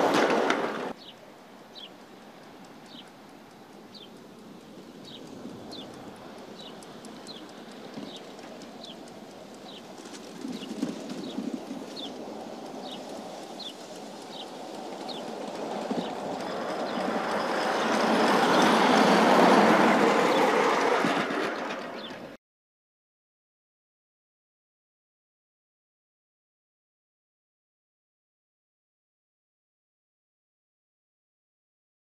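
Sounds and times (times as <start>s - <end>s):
model steam locomotive passing: 0.0s - 22.4s.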